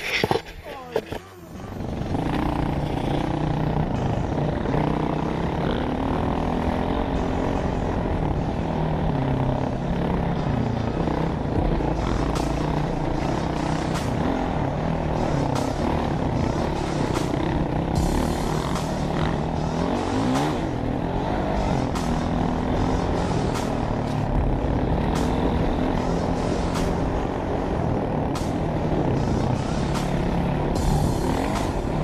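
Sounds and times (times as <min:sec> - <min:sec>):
dirt bike engine revving: 0:00.0 - 0:32.0.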